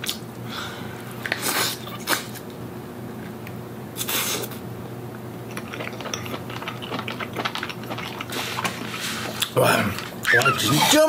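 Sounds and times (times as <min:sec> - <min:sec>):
soft chewing: 0:05.5 - 0:10.8
loud slurp: 0:05.7 - 0:09.6.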